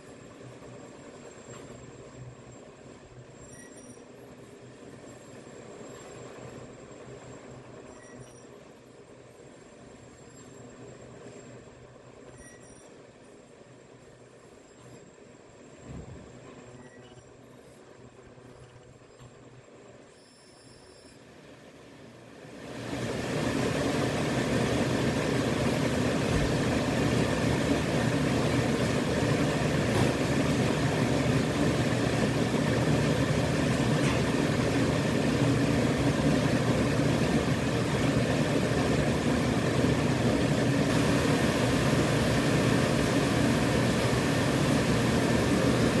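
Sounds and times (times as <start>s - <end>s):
faint clicks: 0.0s - 21.3s
machine humming: 0.0s - 21.3s.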